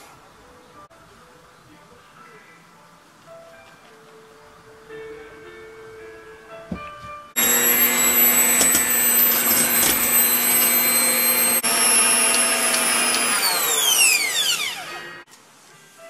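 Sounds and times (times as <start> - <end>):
electric hand mixer whirring: 7.4 - 15.3.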